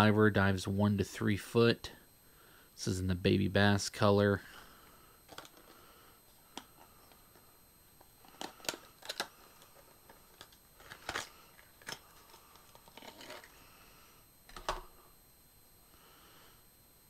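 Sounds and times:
plastic packaging clicking and crinkling: 0:05.3 - 0:05.8, 0:08.0 - 0:13.6, 0:14.5 - 0:14.9.

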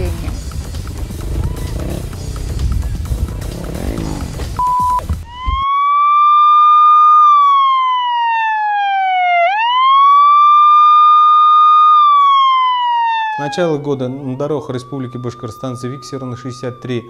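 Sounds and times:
short beep: 0:04.6 - 0:05.1
siren wailing: 0:04.6 - 0:17.0.

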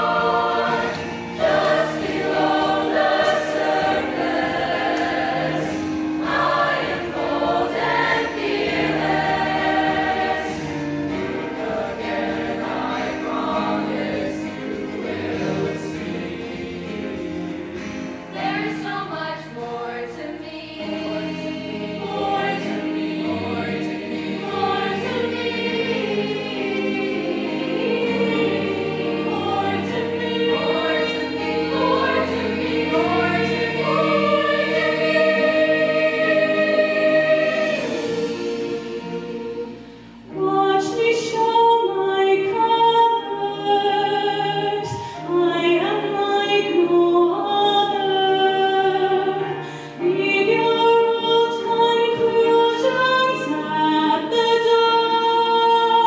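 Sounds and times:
choir singing: 0:00.0 - 0:56.0
woman singing into a microphone: 0:40.3 - 0:56.0.

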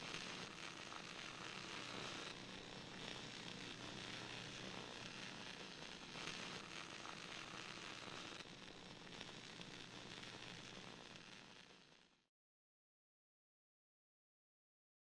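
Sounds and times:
static hiss with crackle: 0:00.0 - 0:12.3.

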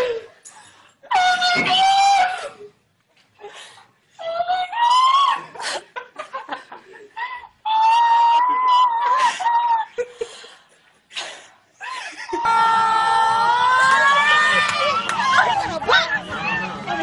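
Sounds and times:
woman squealing and screaming: 0:01.1 - 0:02.7, 0:04.2 - 0:05.7, 0:07.3 - 0:10.0, 0:12.3 - 0:17.0
breathy sobs: 0:06.9 - 0:12.6
crowd noise: 0:12.4 - 0:17.0.

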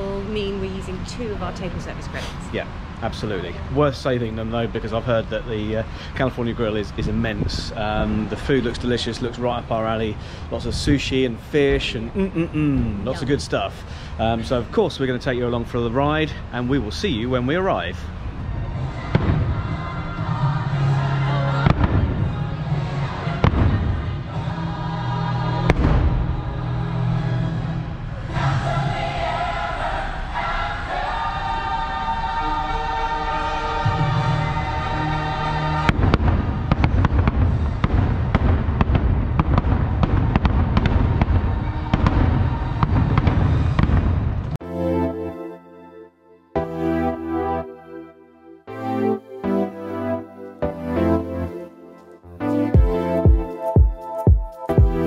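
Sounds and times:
music playing: 0:18.8 - 0:36.8, 0:44.6 - 0:55.0
low rumble: 0:33.8 - 0:44.6
fireworks bursting: 0:35.8 - 0:44.5
music chords: 0:44.6 - 0:55.0.

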